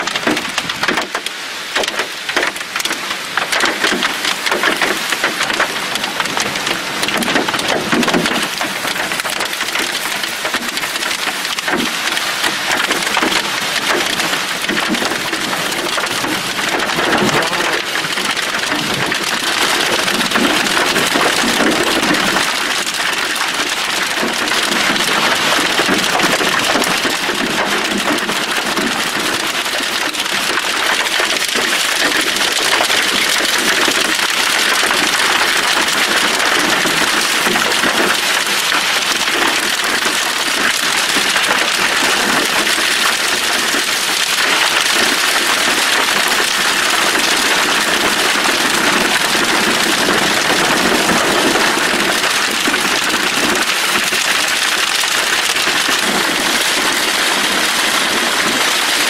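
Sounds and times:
hail and rain pelting on grass: 0.0 - 59.0.

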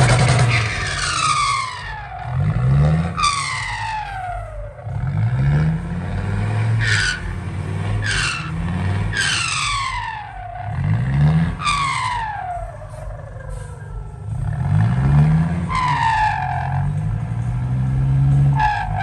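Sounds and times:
diesel engine revving hard: 0.0 - 19.0.

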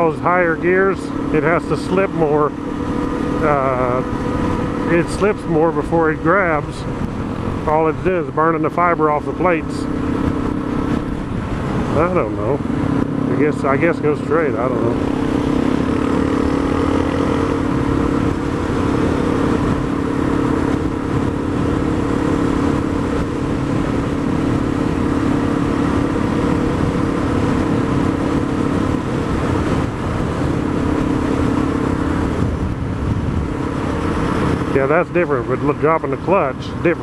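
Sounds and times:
motorcycle engine cruising: 0.0 - 37.0
wind noise: 14.8 - 35.5.

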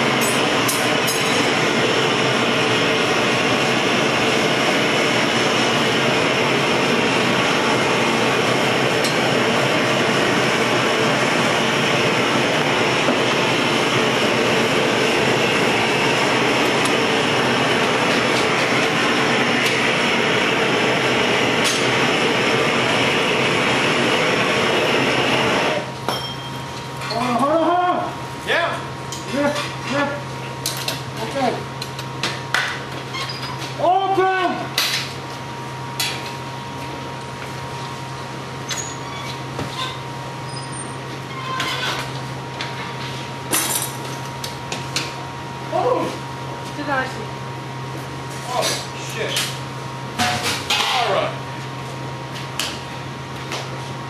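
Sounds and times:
hand torch roaring: 0.0 - 26.0.

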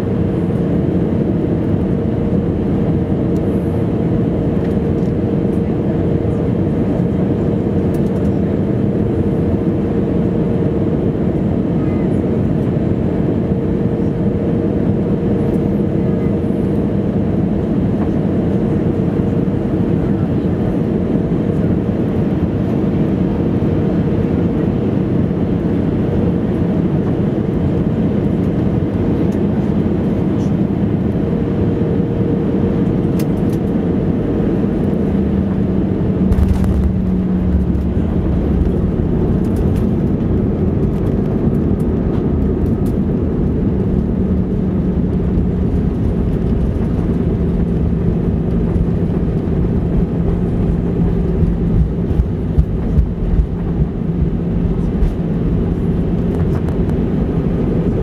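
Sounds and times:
jet engine and airflow in cabin: 0.0 - 58.0
touchdown thump and rumble: 36.2 - 42.7, 50.0 - 55.2.

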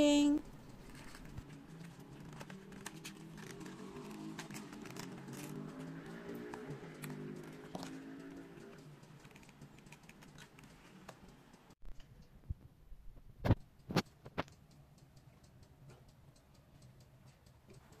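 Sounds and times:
music: 1.4 - 11.7
faint clicks and taps: 13.4 - 18.0.

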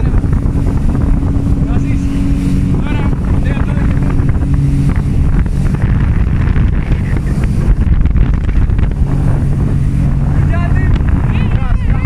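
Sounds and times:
jet ski engine droning: 0.0 - 12.0
wind buffeting microphone: 0.0 - 12.0.

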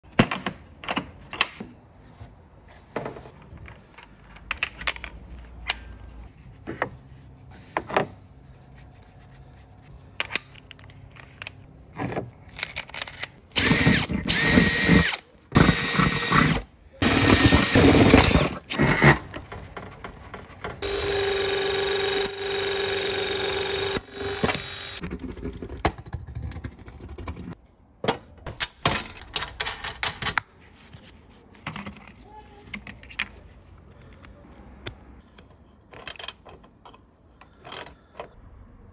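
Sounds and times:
power drill boring through steel: 13.6 - 18.6, 20.8 - 25.0.

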